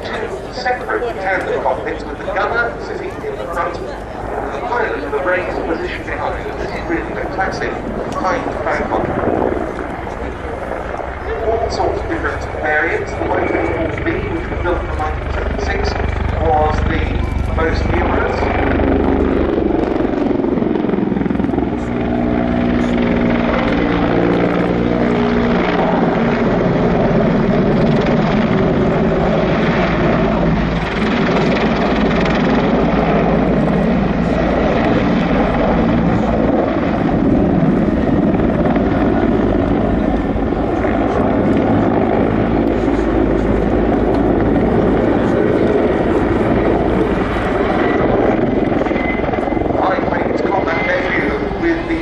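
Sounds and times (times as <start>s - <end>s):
helicopter rotor beating: 0.0s - 52.0s
turbine whine: 0.0s - 52.0s.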